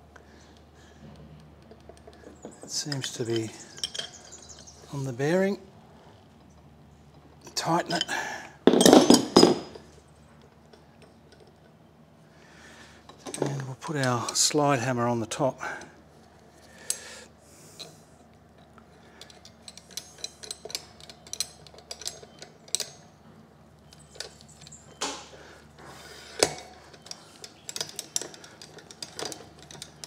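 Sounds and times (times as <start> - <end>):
metal tool clicks and clinks: 2.8 - 4.7, 19.2 - 23.1, 26.4 - 30.0.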